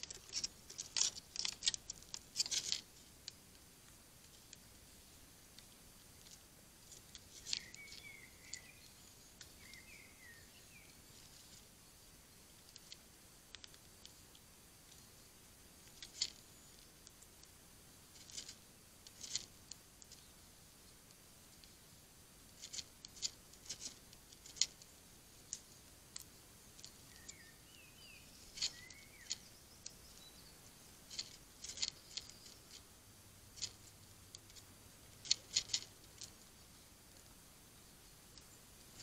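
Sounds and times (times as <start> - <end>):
squirrel cracking nuts: 0.0 - 39.0
faint bird chirps: 6.8 - 17.5, 25.4 - 33.0.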